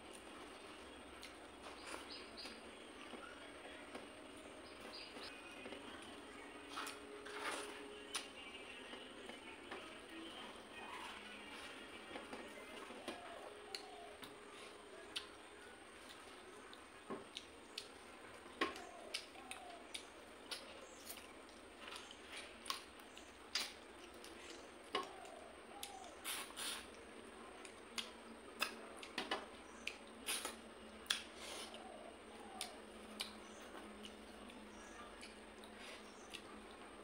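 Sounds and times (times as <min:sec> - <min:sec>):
wet chewing and sucking: 0:29.8 - 0:31.9.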